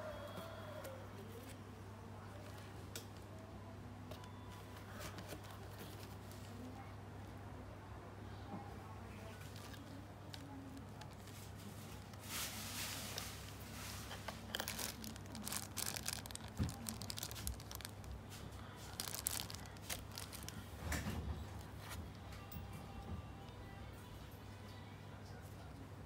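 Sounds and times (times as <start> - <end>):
plastic bags crinkling: 9.2 - 21.9.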